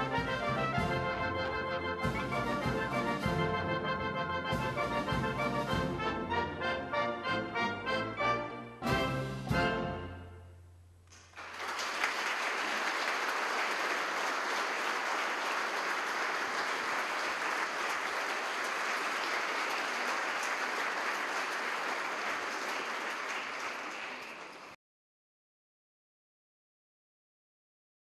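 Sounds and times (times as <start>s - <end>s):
audience applause: 11.1s - 24.8s.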